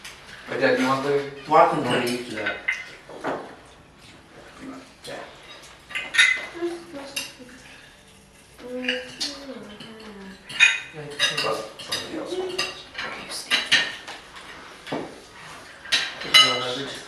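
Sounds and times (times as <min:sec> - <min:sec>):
cutlery clinking on plates: 0:01.9 - 0:03.6, 0:05.4 - 0:07.4, 0:08.8 - 0:17.0.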